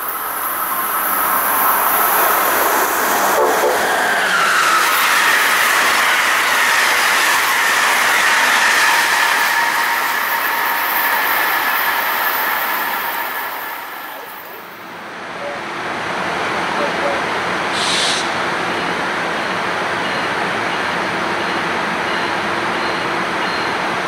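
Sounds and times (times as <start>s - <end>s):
train wheels rushing on rail: 0.0s - 24.0s
train whine: 0.0s - 24.0s.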